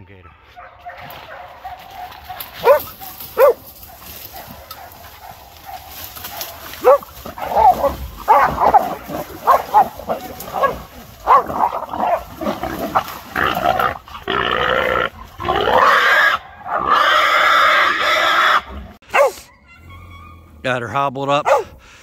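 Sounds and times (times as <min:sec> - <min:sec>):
dog barking: 0:00.1 - 0:12.3, 0:19.0 - 0:19.6, 0:21.4 - 0:21.8
hog grunting: 0:06.4 - 0:19.4
hog squealing loudly: 0:13.4 - 0:19.5.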